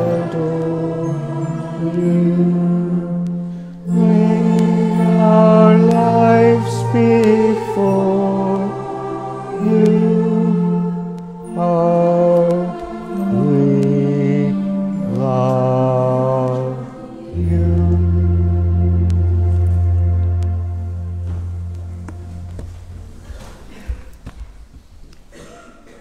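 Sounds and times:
deep bass chord: 0.0 - 23.4
slow hymn music in held chords: 0.0 - 24.0.

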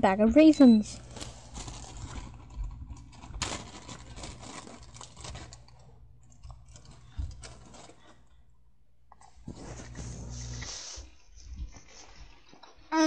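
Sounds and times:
crackly plastic bag rustling: 0.8 - 8.5.

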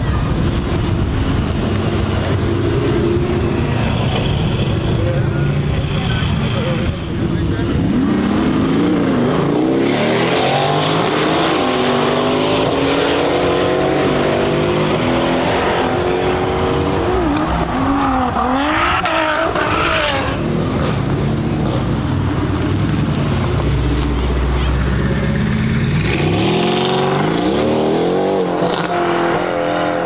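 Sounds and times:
car engine accelerating hard: 0.6 - 30.0
engine revving: 7.3 - 22.4, 23.2 - 30.0.

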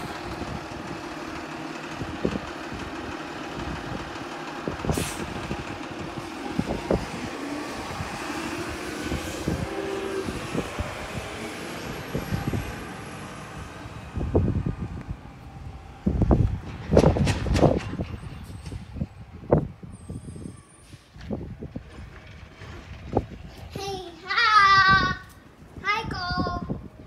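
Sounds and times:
garbage truck engine and hydraulics: 0.0 - 27.0.

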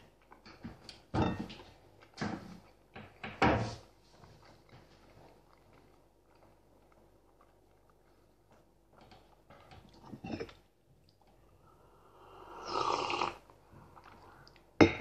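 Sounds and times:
chewing and mouth sounds: 4.4 - 8.8
slurp from a mug: 12.2 - 13.4.

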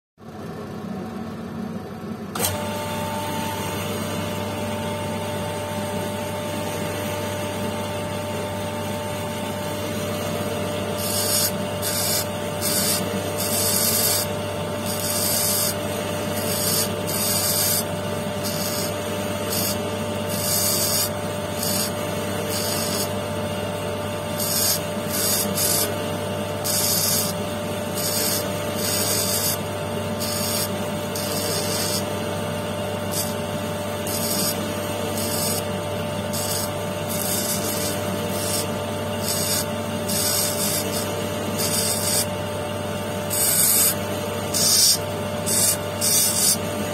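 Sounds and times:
electric motor humming: 2.3 - 46.9
stone grinding on wheel: 10.2 - 23.2, 24.3 - 26.0, 26.6 - 32.2, 33.0 - 42.3, 43.2 - 46.9.

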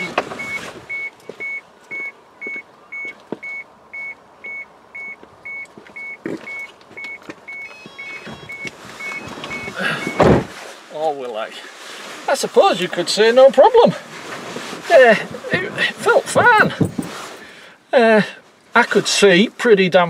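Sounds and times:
electronic warning beeps: 0.0 - 10.5.

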